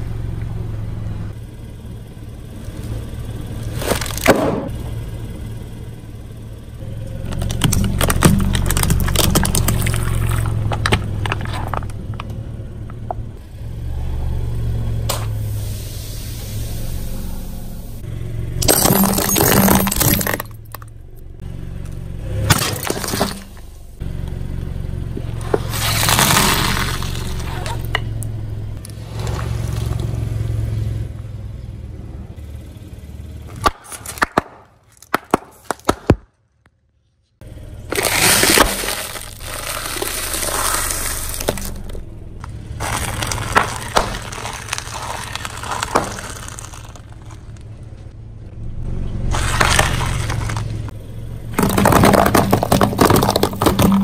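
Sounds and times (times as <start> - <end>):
car engine rumble: 0.0 - 54.0
tire crunching brittle objects: 2.6 - 5.9, 6.5 - 18.0, 18.6 - 30.7, 33.4 - 54.0
snack packets popping: 37.9 - 42.0, 42.8 - 47.4.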